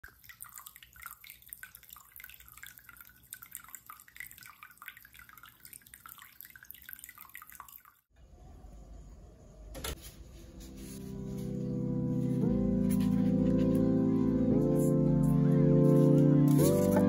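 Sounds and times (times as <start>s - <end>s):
aquarium waterfall trickling: 0.0s - 8.1s.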